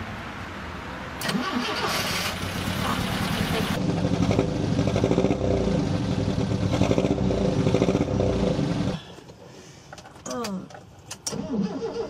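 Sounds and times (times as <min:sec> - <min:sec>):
car engine idling: 0:01.2 - 0:09.1.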